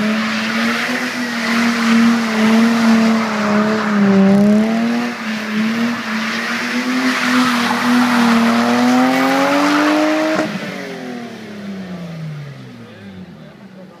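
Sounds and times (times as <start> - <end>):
tyres squealing on asphalt: 0.0 - 10.6
car engine revving high: 0.0 - 13.9.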